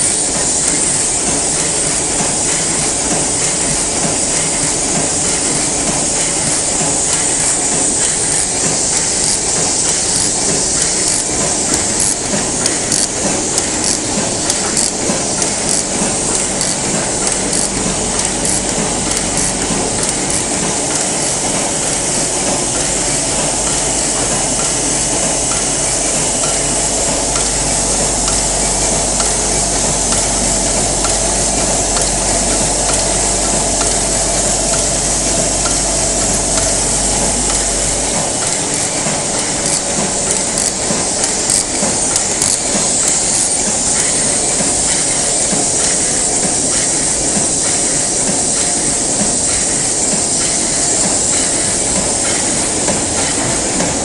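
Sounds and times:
constant hiss: 0.0 - 54.0
sewing machine clattering: 0.0 - 54.0
low hum: 15.2 - 40.8.

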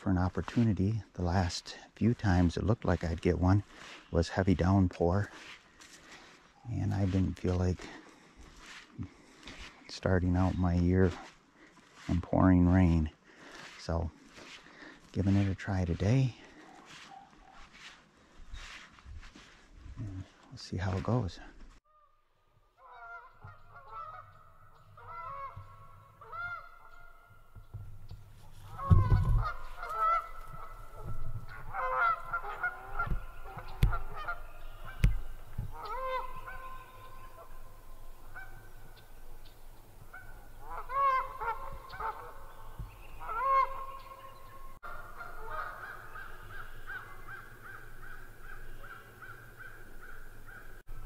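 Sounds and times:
geese honking: 0.0 - 17.9, 22.8 - 51.0
dull low thumps: 27.5 - 31.9.

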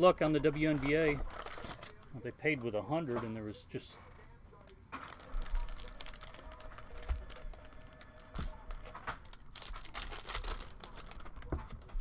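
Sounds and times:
foil wrappers crinkling: 0.2 - 2.8, 4.6 - 12.0
foil pack tearing open: 5.0 - 12.0.

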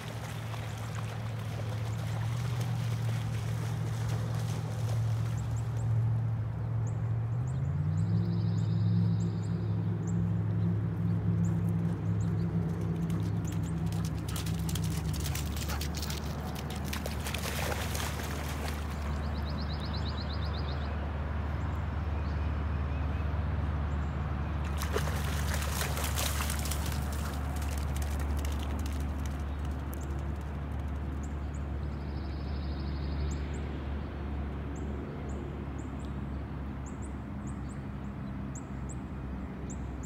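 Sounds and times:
dog splashing through water: 0.0 - 5.8, 12.9 - 19.4, 24.6 - 29.4.

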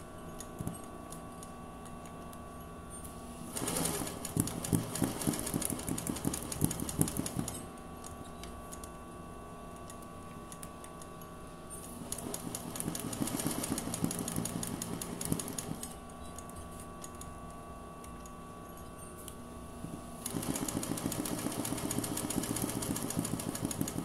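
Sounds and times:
sewing machine needle strokes: 3.6 - 7.6, 11.8 - 16.0, 20.2 - 24.0.

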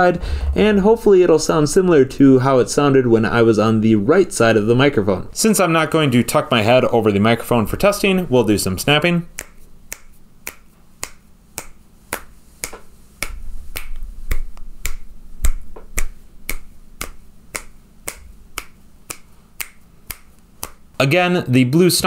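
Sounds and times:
finger snaps: 9.3 - 21.0.

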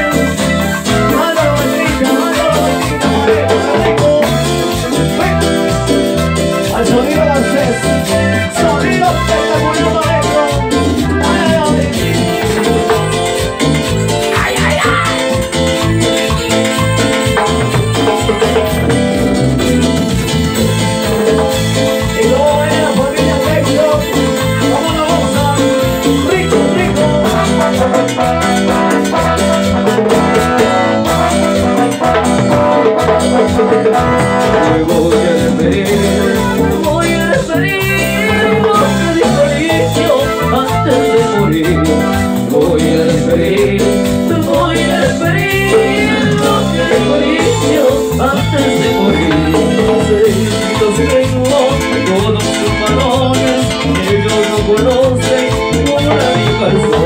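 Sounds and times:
people singing: 0.0 - 6.0, 6.6 - 13.4, 21.0 - 28.4, 32.8 - 57.0
latin dance band playing: 0.0 - 57.0.

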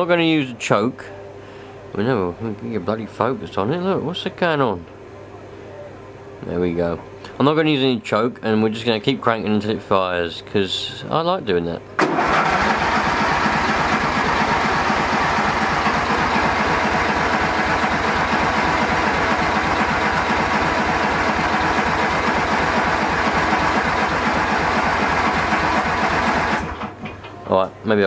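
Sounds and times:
car engine cranking without firing: 12.0 - 27.0.

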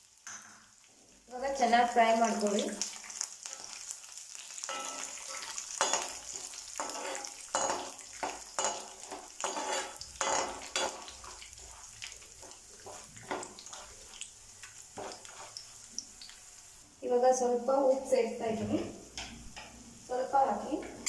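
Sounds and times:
oil sizzling: 0.0 - 21.0
metal spatula scraping a pan: 3.4 - 3.9, 4.6 - 14.2, 15.0 - 15.7.

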